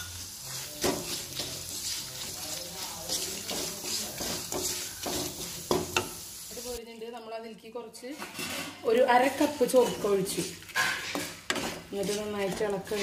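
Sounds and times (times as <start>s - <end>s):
sauce sizzling in a pan: 0.0s - 6.8s
wooden spatula scraping a pan: 0.0s - 6.8s, 8.0s - 13.0s.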